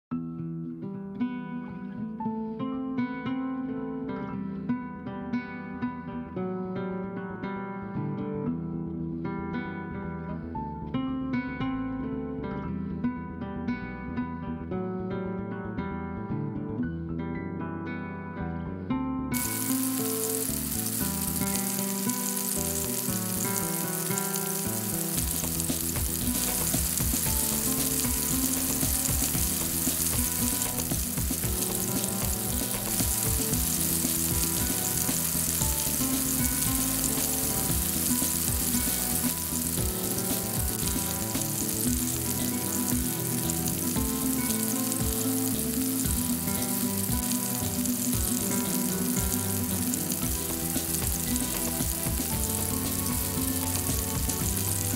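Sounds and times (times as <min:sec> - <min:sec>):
vegetables sizzling in oil: 0:19.4 - 0:54.9.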